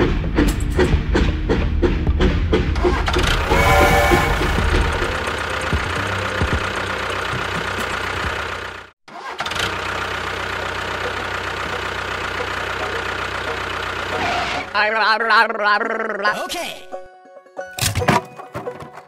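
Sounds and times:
engine running with low hum: 0:00.0 - 0:14.7.

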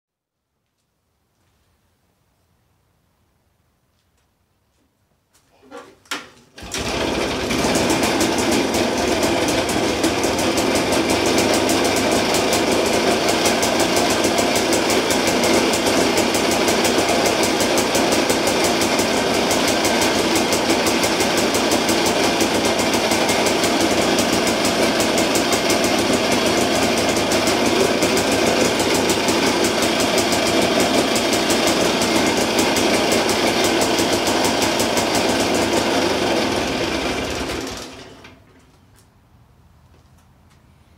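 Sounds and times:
generator engine running: 0:06.6 - 0:38.6.

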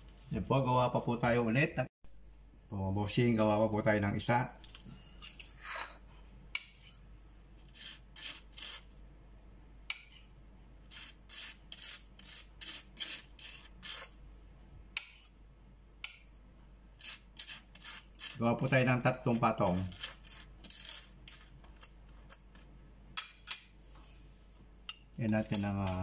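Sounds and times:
knife scraping butter on bread: 0:07.6 - 0:08.9, 0:10.9 - 0:14.2, 0:17.0 - 0:22.7.

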